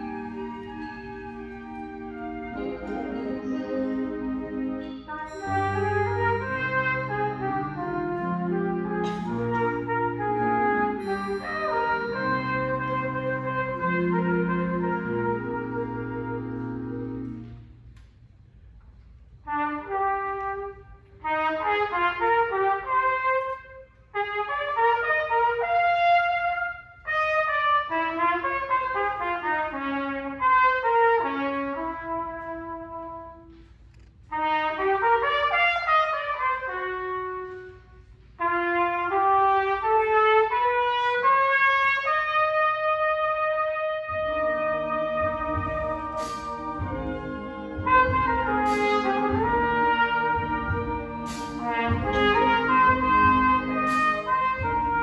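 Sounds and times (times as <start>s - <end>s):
solo trumpet melody: 0.0s - 17.9s, 19.4s - 55.0s
lower instruments: 0.0s - 21.8s, 42.0s - 55.0s.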